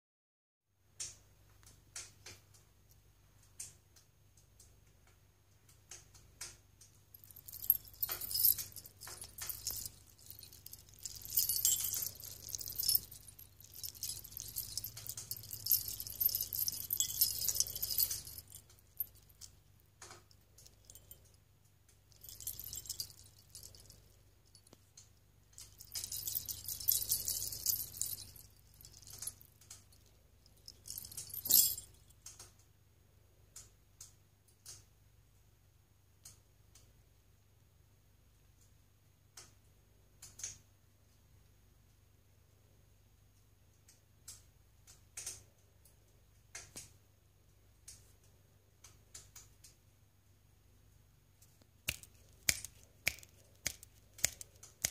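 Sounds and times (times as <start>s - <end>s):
jingle bells shaken: 7.1s - 19.6s, 20.3s - 21.4s, 22.1s - 24.8s, 25.6s - 32.2s, 51.9s - 54.9s.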